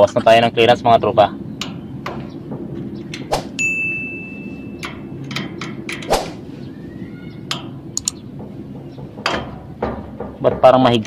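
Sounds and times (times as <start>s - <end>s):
steady low hum: 0.0s - 11.0s
thin metallic ring: 3.5s - 6.1s.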